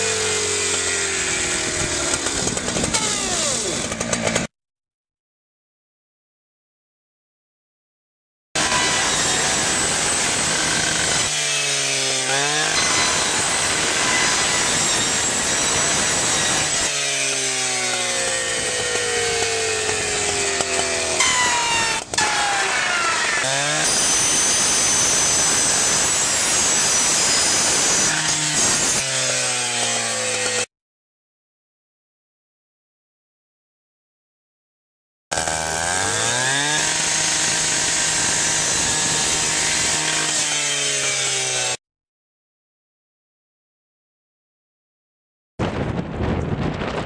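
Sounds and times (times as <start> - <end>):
rescue saw cutting sheet metal: 0.0 - 4.5, 8.6 - 30.7, 35.3 - 41.8.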